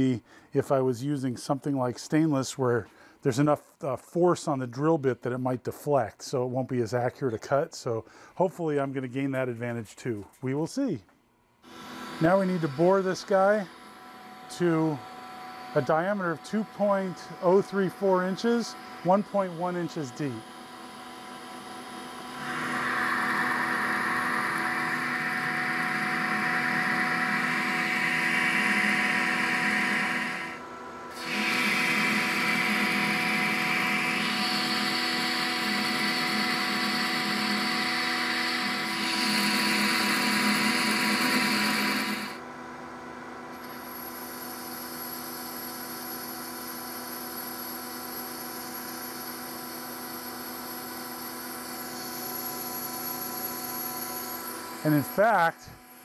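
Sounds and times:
lathe spindle humming: 11.7 - 42.5, 43.6 - 56.0
gritty metal cutting noise: 22.1 - 42.4.

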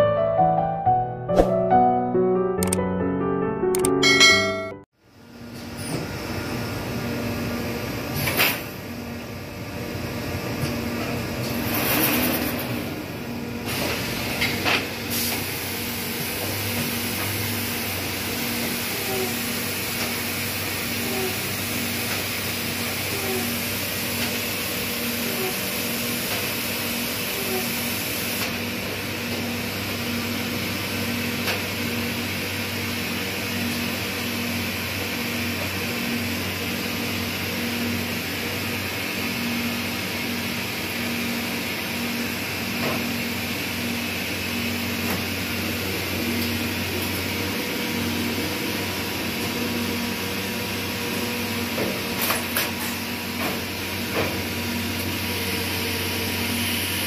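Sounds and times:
sharp clicks: 2.6 - 2.8
laser cutter hum and hiss: 15.0 - 31.3.

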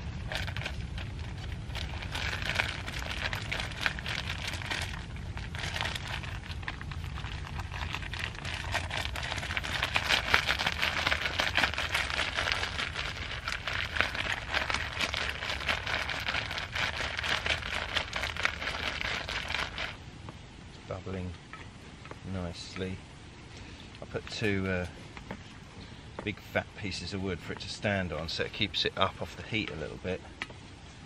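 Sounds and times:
campfire rumble: 0.0 - 30.3.

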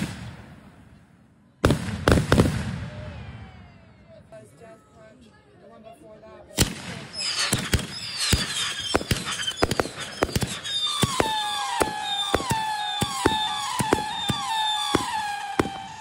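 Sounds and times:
whistling firework shots: 0.0 - 0.9, 1.6 - 3.8, 6.6 - 16.0
firework bangs and crackles: 0.0 - 1.0, 1.6 - 3.8, 6.5 - 16.0.

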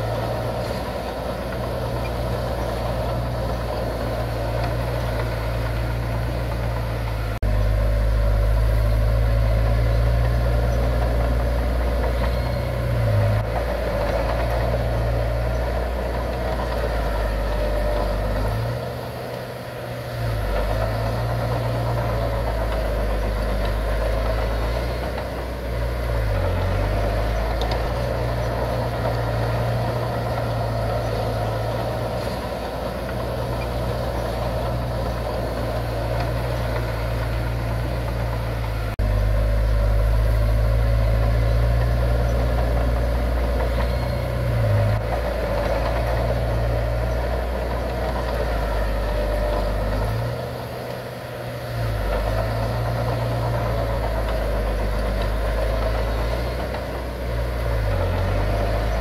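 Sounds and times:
diesel engine low rumble: 0.0 - 59.0.

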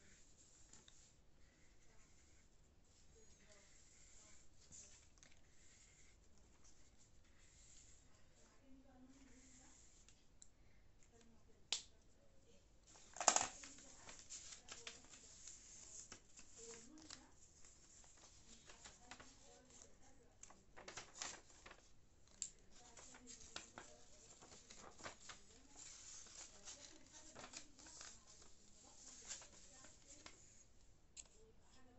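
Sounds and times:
sharp paper clicks: 12.9 - 17.3, 17.9 - 30.4
paper rustling and scraping: 12.9 - 30.6.

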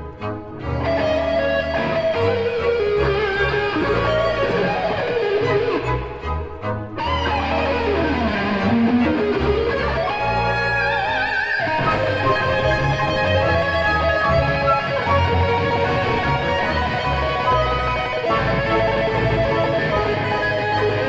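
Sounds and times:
electric guitar lead melody: 0.0 - 21.0
orchestra accompaniment: 0.0 - 21.0.

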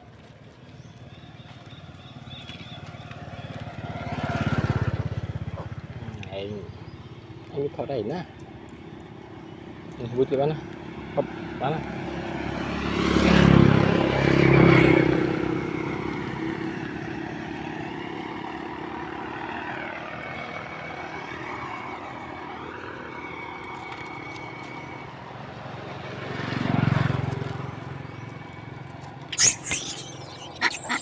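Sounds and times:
motor vehicle engine passing: 1.1 - 7.2.

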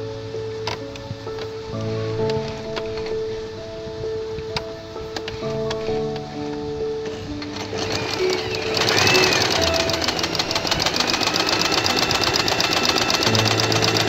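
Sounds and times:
background music: 0.0 - 14.0
sewing machine stitching: 7.1 - 14.0.

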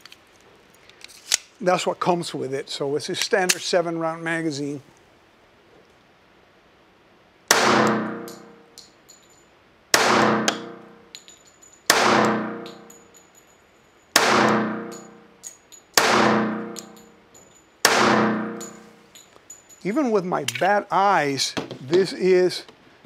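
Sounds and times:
pistol shots echoing indoors: 7.5 - 8.6, 9.9 - 11.1, 11.9 - 13.0, 14.2 - 15.3, 16.0 - 17.0, 17.8 - 18.9
brass casings clinking: 7.5 - 20.8.

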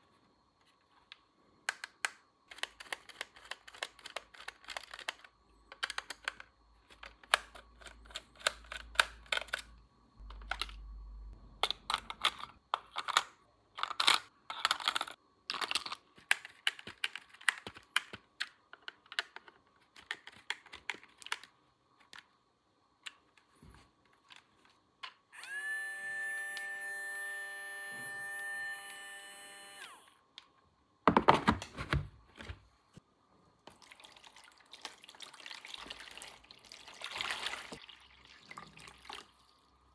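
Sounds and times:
plastic toy pieces clicking: 1.7 - 10.8, 11.6 - 22.3.

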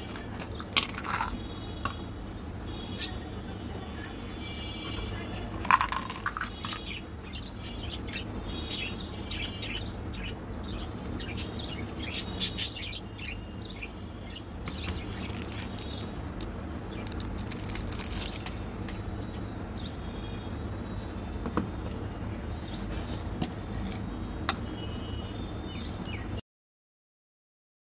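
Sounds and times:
birds chirping: 0.0 - 23.3, 24.2 - 26.4
candy clicking into plastic jar: 0.1 - 1.4, 5.1 - 6.9.

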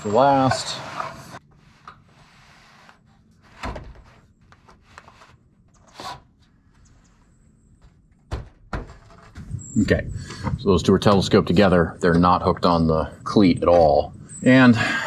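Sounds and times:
sheet metal thunks: 8.3 - 9.5.

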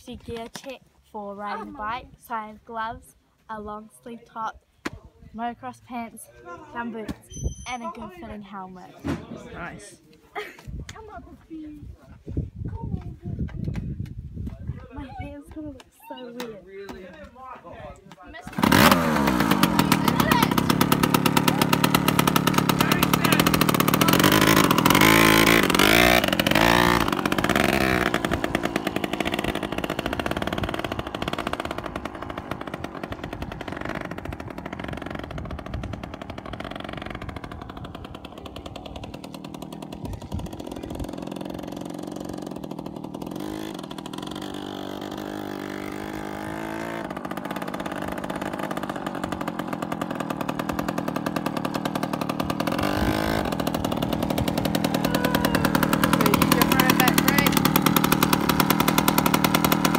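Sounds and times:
dirt bike two-stroke engine: 5.4 - 10.0, 18.3 - 59.9.

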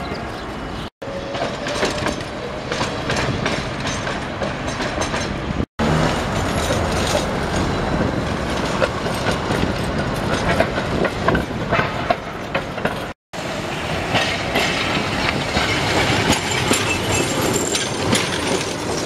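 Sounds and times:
tram wheels clattering over rail joints: 1.0 - 19.0
traffic hum: 2.5 - 16.2.

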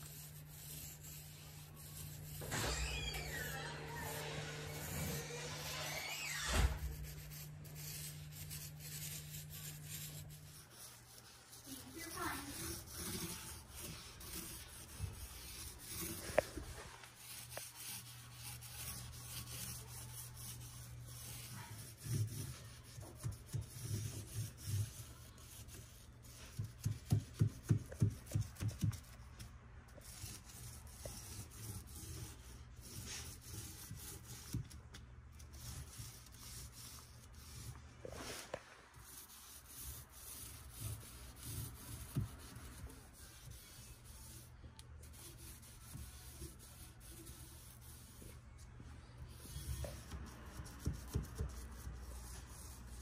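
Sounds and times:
paint roller rubbing: 0.0 - 29.3, 30.0 - 34.8, 35.4 - 48.4, 49.3 - 53.0.

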